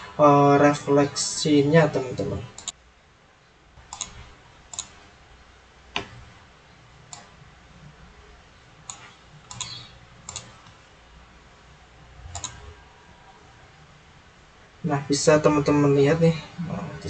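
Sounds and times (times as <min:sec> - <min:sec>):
faint low hum: 0:00.0 - 0:17.0
computer mouse clicking: 0:02.6 - 0:02.8, 0:03.8 - 0:05.0, 0:07.1 - 0:07.3, 0:08.8 - 0:10.8, 0:12.3 - 0:12.7.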